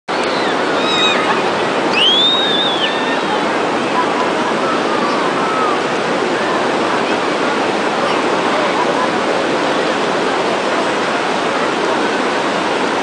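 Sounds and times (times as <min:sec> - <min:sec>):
high rising-and-falling call: 0:00.1 - 0:03.4
distant voices: 0:00.1 - 0:13.0
ocean surf on a beach: 0:00.1 - 0:13.0.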